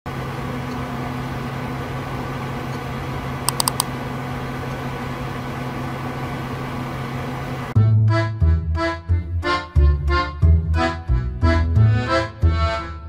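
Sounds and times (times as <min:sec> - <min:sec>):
computer hum and fan hiss: 0:00.1 - 0:07.8
mouse clicks: 0:03.5 - 0:03.9.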